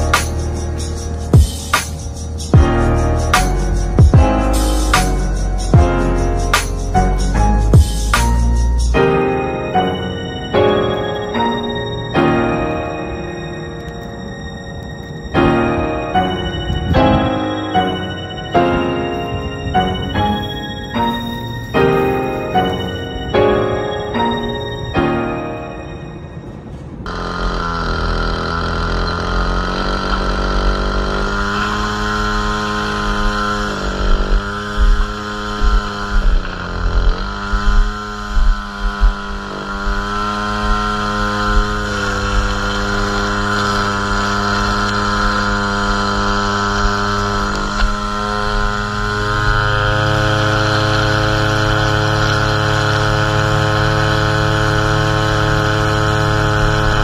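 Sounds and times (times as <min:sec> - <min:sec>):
string trimmer engine running: 0:00.0 - 0:09.0, 0:26.8 - 0:57.0.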